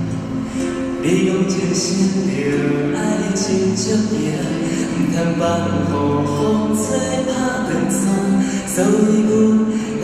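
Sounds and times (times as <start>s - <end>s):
acoustic guitars: 0.0s - 10.0s
man singing folk ballad: 0.6s - 10.0s.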